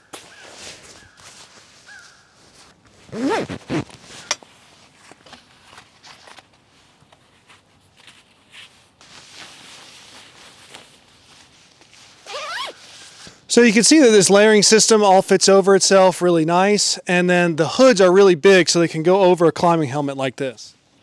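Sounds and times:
nylon jacket fabric rustling: 0.0 - 13.4
zipper pulled up: 3.0 - 4.4, 12.2 - 12.8.

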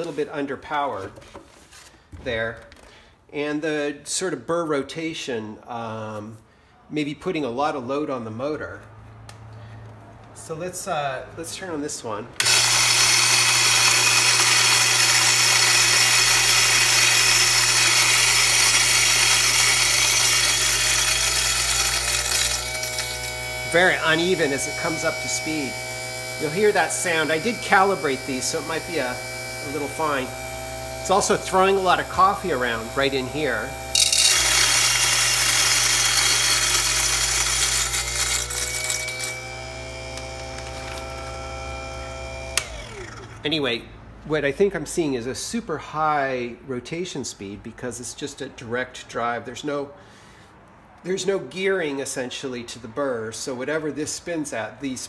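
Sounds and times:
electric coffee grinder grinding: 12.4 - 43.4.

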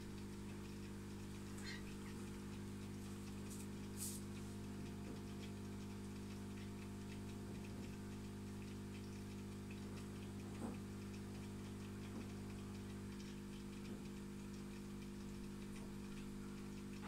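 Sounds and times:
aquarium equipment hum: 0.0 - 17.0
light ticking: 0.0 - 17.0
small water plops: 0.0 - 17.0.

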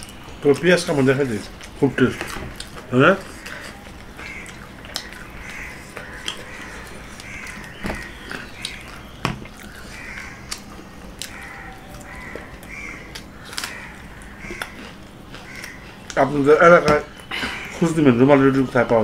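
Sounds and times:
crows cawing: 0.3 - 18.2.

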